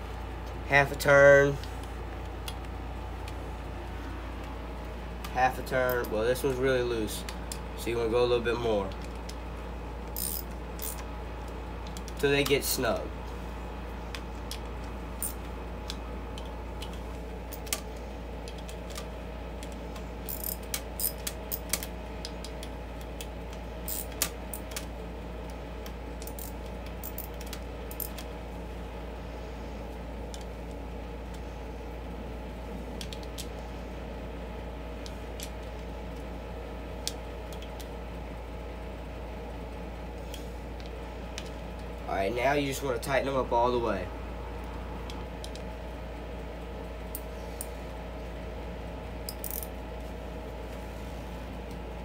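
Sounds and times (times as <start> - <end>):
socket ratchet clicking: 10.1 - 11.0, 20.3 - 22.7, 23.9 - 24.9, 26.2 - 28.2, 49.3 - 49.7.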